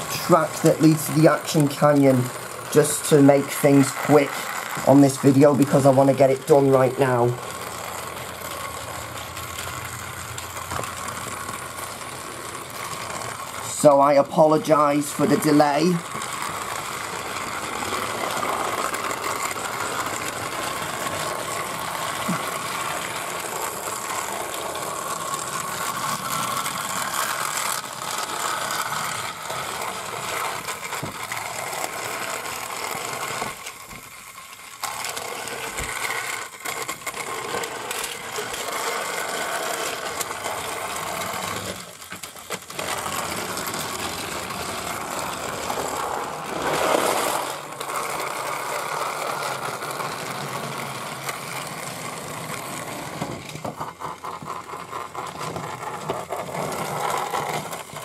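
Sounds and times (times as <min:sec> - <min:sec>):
toy train motor whirring: 0:00.0 - 0:58.0.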